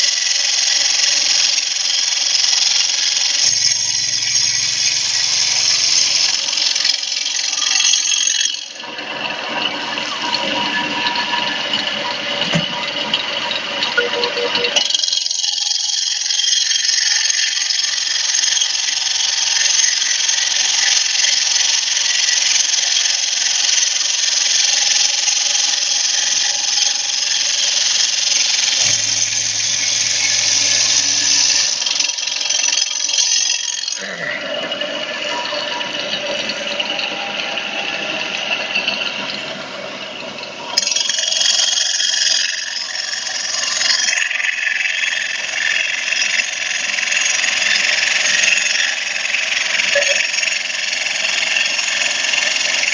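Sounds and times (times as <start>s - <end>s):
saw blade grinding stone: 25.4s - 39.6s, 40.5s - 52.9s.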